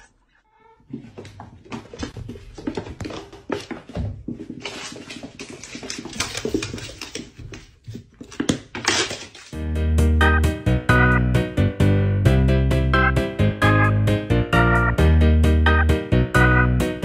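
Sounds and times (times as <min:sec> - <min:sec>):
paws scrabbling: 0:00.9 - 0:09.3.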